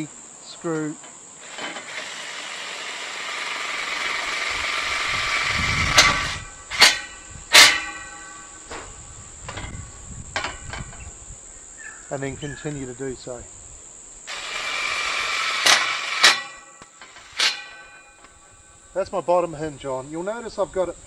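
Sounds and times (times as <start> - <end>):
sharp knocks: 5.9 - 8.9, 14.6 - 18.3
screw gun driving screw into metal: 14.3 - 18.0.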